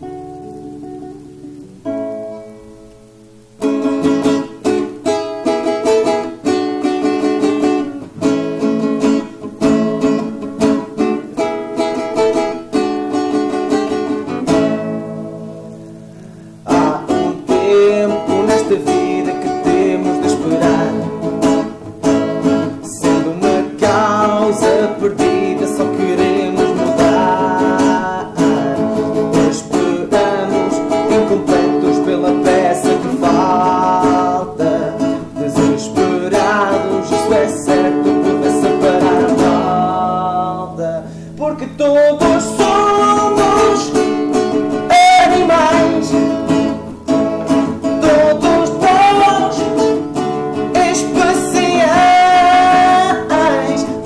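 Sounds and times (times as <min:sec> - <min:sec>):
strummed acoustic guitars: 0:00.0 - 0:54.0
person singing: 0:03.7 - 0:54.0.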